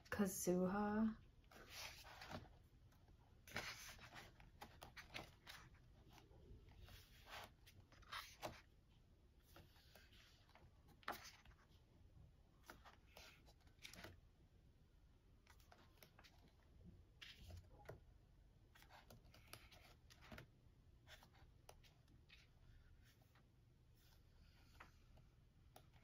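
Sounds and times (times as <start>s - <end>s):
paper pages turning: 1.5s - 8.7s, 9.4s - 11.8s, 12.6s - 14.2s, 15.4s - 16.6s, 17.2s - 18.0s, 18.7s - 26.0s.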